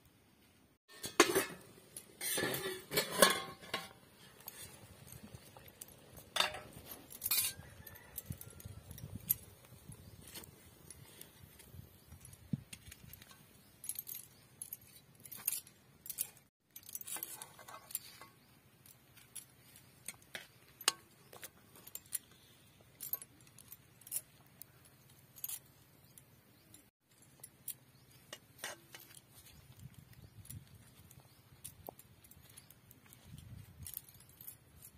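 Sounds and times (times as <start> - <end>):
metal spatula scraping a pan: 0.9 - 4.8.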